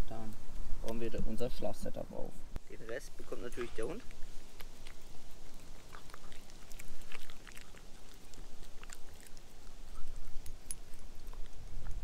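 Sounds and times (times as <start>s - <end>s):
dog chewing with soft clicks: 3.6s - 12.0s.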